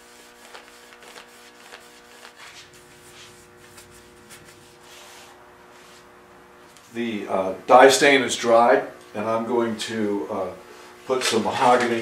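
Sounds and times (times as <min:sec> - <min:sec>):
cloth rubbing on wood: 0:00.0 - 0:06.2
faint steady hum: 0:00.0 - 0:12.0.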